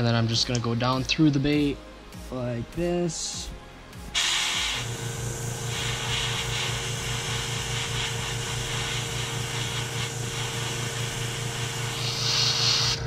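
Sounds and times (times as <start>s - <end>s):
airbrush spraying hiss: 4.1s - 13.0s
low machine hum: 4.8s - 13.0s.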